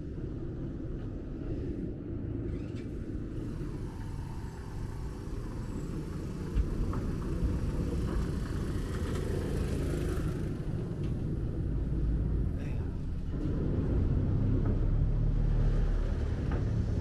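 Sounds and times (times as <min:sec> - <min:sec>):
ferry motor rumbling: 0:00.0 - 0:17.0.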